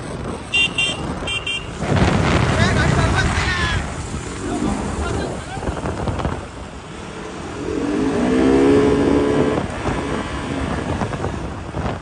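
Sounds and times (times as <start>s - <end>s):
road rumble: 0.0s - 12.0s
vehicle engine passing: 1.8s - 11.2s.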